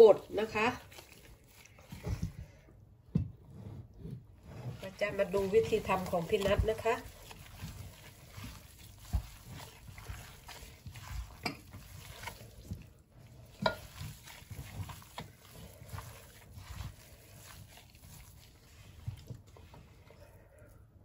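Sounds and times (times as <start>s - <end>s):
wet squishing of kneaded meat: 0.0s - 21.0s.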